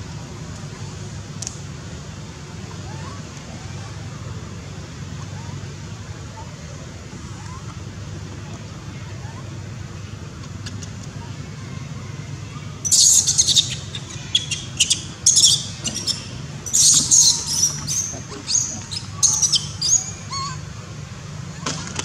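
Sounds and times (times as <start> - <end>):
young macaque screaming: 12.8 - 20.7.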